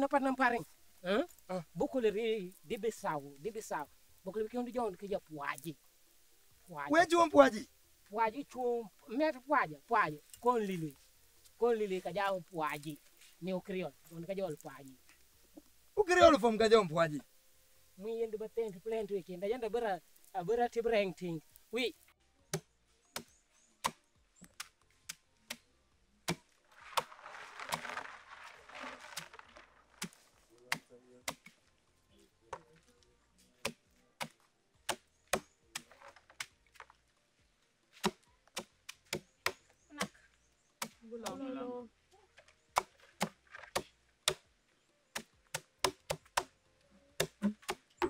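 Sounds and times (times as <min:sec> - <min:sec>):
rustling: 0:00.0 - 0:22.2, 0:26.4 - 0:34.5
wooden stick cracking nuts: 0:21.5 - 0:31.6, 0:33.6 - 0:37.1, 0:42.4 - 0:44.5.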